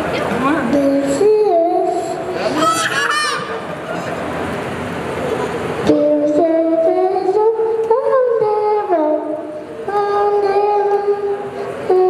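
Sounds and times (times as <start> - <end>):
child singing into microphone: 0.6 - 3.1, 5.8 - 12.0.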